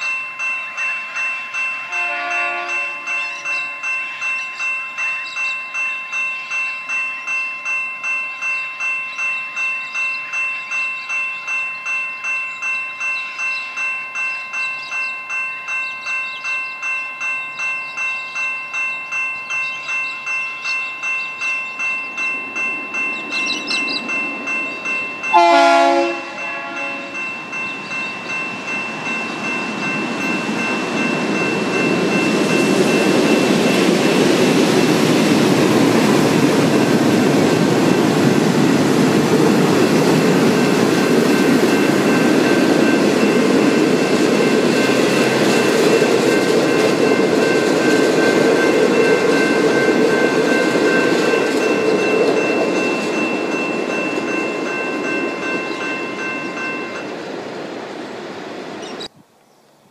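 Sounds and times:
level crossing bell ringing: 0:00.0 - 0:38.2, 0:39.5 - 0:57.1
passenger train rumbling: 0:00.0 - 0:59.1
train horn blast: 0:01.9 - 0:03.7, 0:25.3 - 0:27.2.

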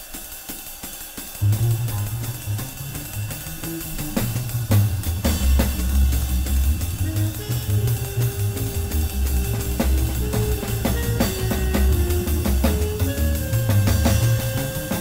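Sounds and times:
drum kit with cymbals: 0:00.0 - 0:15.0
small band jazz: 0:01.2 - 0:15.0
long held note: 0:01.4 - 0:15.0
plucked double bass: 0:01.4 - 0:15.0.

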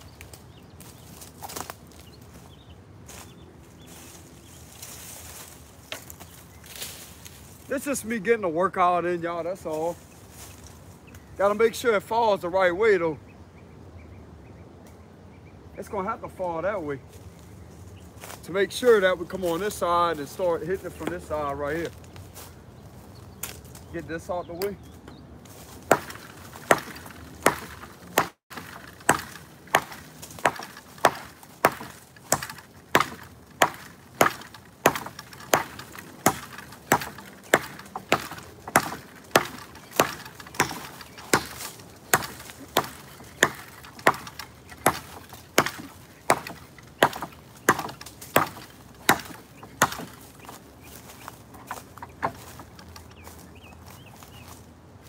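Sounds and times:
machete chopping into wood: 0:25.8 - 0:50.6.

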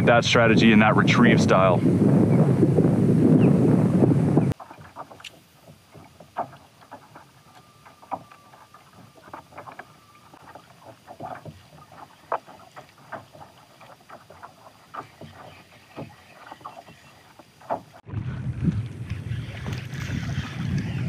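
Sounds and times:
water lapping against kayak hull: 0:00.0 - 0:21.0.

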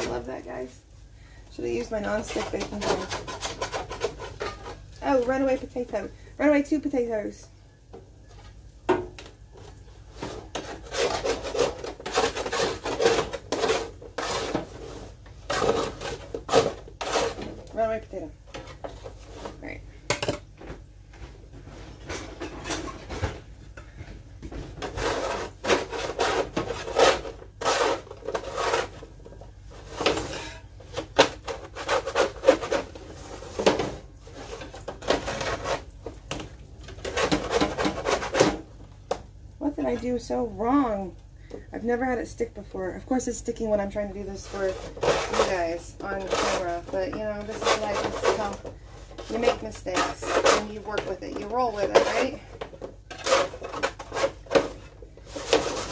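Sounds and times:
spatula scraping baking pan: 0:01.6 - 0:06.1, 0:10.1 - 0:19.8, 0:24.8 - 0:36.0, 0:36.8 - 0:38.7, 0:43.1 - 0:55.9.

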